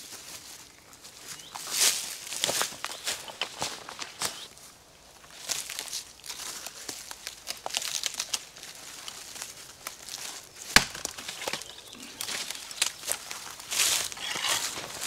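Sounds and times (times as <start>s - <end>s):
leaves rustling: 0.0s - 15.0s
twigs crackling: 0.0s - 15.0s
sharp crack of breaking wood: 10.6s - 13.0s.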